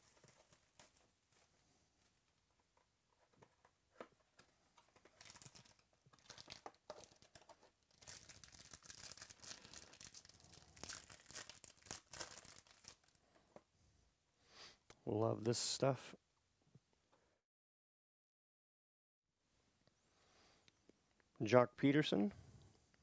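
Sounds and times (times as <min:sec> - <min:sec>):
foil wrapper crinkling and tearing: 0:05.0 - 0:13.2.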